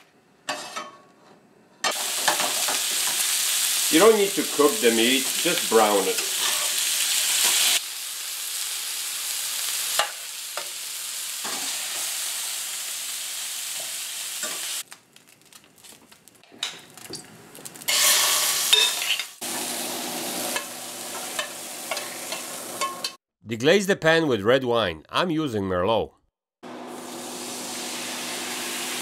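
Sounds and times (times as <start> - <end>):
metal utensil scraping a pan: 0.5 - 3.2, 6.1 - 6.8, 17.9 - 19.4, 20.5 - 23.2
meat sizzling in a frying pan: 1.9 - 16.4, 17.6 - 23.1, 26.9 - 29.0.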